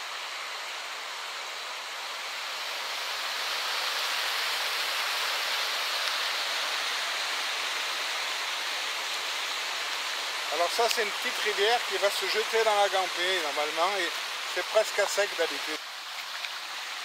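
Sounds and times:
rushing floodwater: 0.0 - 17.0.

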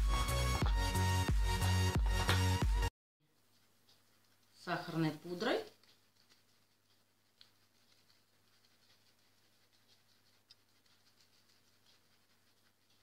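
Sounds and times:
small ticks: 3.4 - 13.0
sugar sifting soft patter: 3.4 - 13.0.

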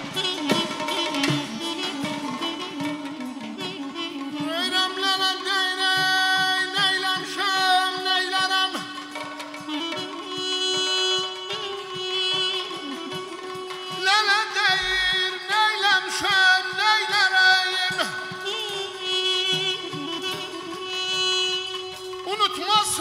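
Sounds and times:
man singing ornamented notes: 0.0 - 23.0.

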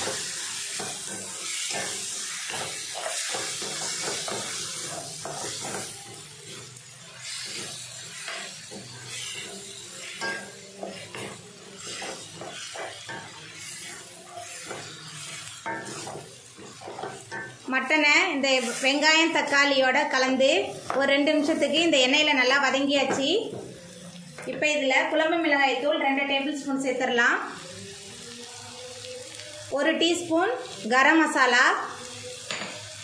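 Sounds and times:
meat sizzling in hot oil: 0.0 - 25.8, 27.2 - 33.0
wooden spatula scraping pan: 18.5 - 19.0.

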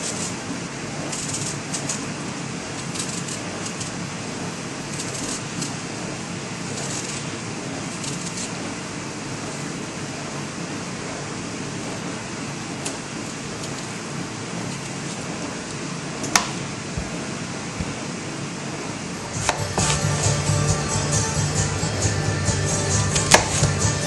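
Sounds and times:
blade scraping apple peel: 0.0 - 0.4, 1.0 - 2.2, 2.8 - 4.0, 4.9 - 5.8, 6.7 - 7.3, 7.9 - 8.6, 19.3 - 20.6, 22.9 - 24.0
background hiss and hum: 0.0 - 24.0.

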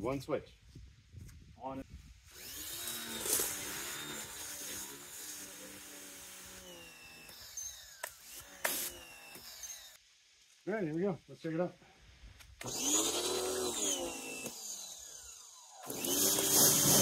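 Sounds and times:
pressure washer motor humming: 12.6 - 17.0.

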